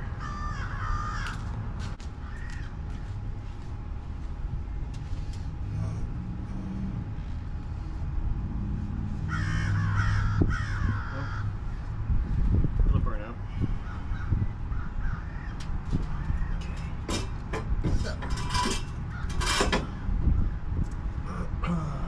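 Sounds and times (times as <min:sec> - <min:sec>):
birds cawing: 0:00.0 - 0:03.3, 0:09.1 - 0:12.2, 0:13.5 - 0:17.0, 0:19.0 - 0:20.7
steady low rumble: 0:00.0 - 0:22.0.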